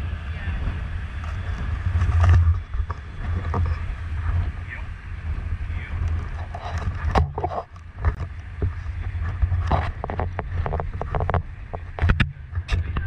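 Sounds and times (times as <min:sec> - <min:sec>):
boat engine humming: 0:00.0 - 0:13.0
wind noise on microphone: 0:00.0 - 0:13.0.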